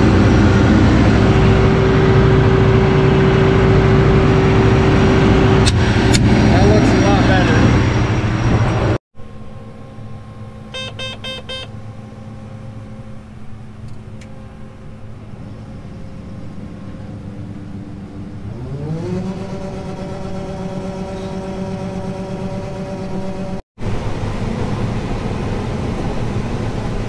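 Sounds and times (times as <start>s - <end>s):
combine engine running: 0.0s - 27.0s
electronic beeps: 10.7s - 11.7s.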